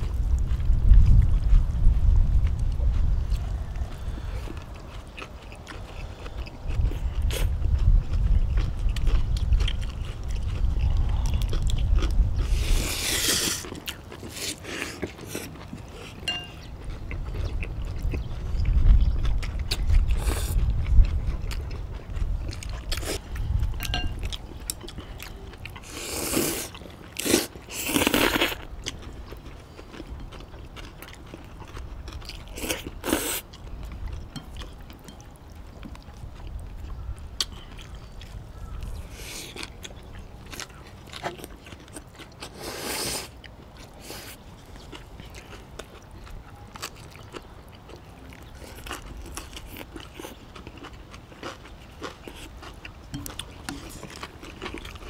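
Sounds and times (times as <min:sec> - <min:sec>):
chewing and crunching: 0:00.0 - 0:55.0
slurping noodles: 0:12.4 - 0:16.2, 0:25.8 - 0:28.6, 0:42.4 - 0:43.4.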